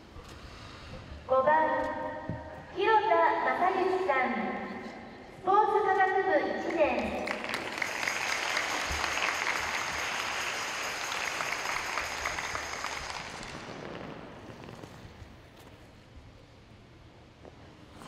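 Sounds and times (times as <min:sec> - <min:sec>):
audience applauding: 0:07.0 - 0:14.2.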